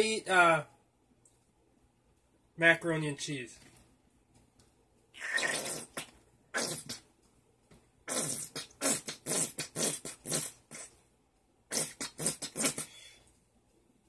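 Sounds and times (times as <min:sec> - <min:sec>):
squeeze bottle sputtering: 0:05.2 - 0:07.0, 0:08.1 - 0:10.9, 0:11.7 - 0:13.0.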